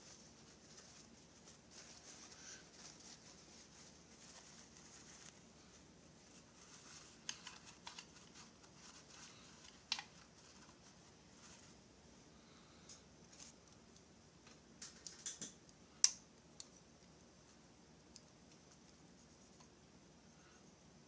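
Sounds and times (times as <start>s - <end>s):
paper towel crinkling: 0.0s - 11.8s.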